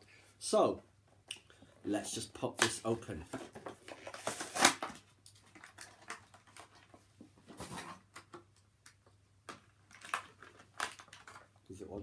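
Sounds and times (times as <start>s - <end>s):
cardboard box and plastic crinkling: 3.2s - 7.0s, 9.5s - 11.5s.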